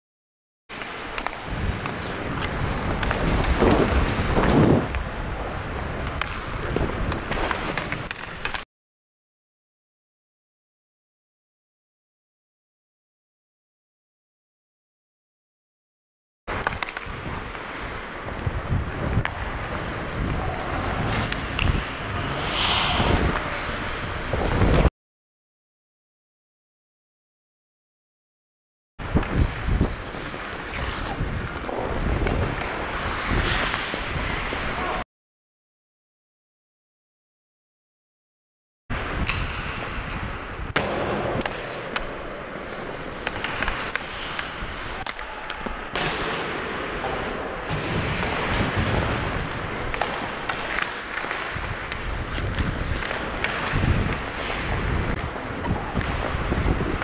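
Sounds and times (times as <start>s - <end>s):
ice skates scraping on ice: 0.7s - 8.6s, 16.5s - 24.9s, 29.0s - 35.0s, 39.0s - 57.0s
sticks and puck clacking: 0.7s - 8.6s, 16.5s - 24.9s, 29.0s - 35.0s, 39.1s - 57.0s
wind rush on microphone: 1.4s - 8.1s, 16.5s - 24.9s, 29.0s - 35.0s, 38.9s - 41.4s, 47.6s - 50.4s, 51.5s - 57.0s.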